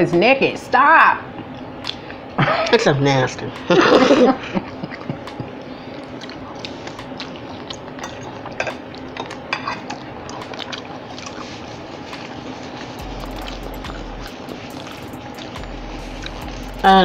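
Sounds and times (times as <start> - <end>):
chewing and wet mouth sounds: 1.4 - 2.8, 4.8 - 16.9
forks clicking against plates: 6.9 - 10.8.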